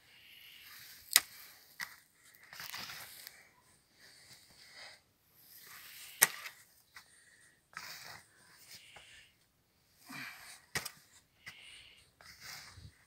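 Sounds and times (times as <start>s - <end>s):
spade crunching into soil: 0.7s - 3.3s, 5.6s - 6.6s.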